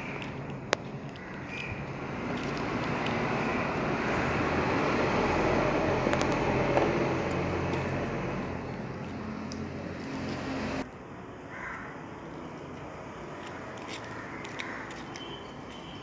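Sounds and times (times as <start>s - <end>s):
passing motor vehicle rumble: 0.0s - 10.9s.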